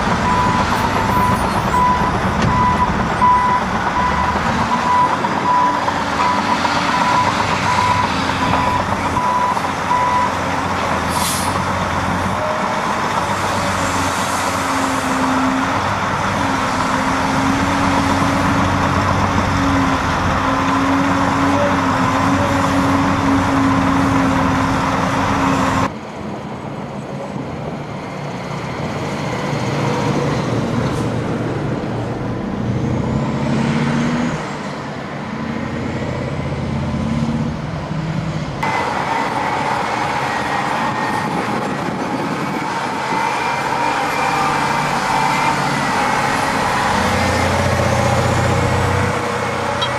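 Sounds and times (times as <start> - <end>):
dump truck diesel drone: 0.0 - 49.9
heavy diesel engines running: 0.0 - 49.9
reversing alarm beeping: 0.2 - 10.4.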